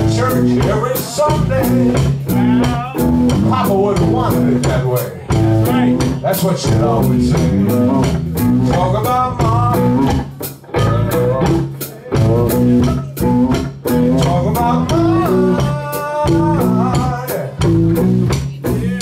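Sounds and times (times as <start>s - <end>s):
man singing into microphone: 0.0s - 10.1s, 13.9s - 17.7s
bass: 0.0s - 19.0s
drum kit beat: 0.0s - 19.0s
electric guitar: 0.0s - 19.0s.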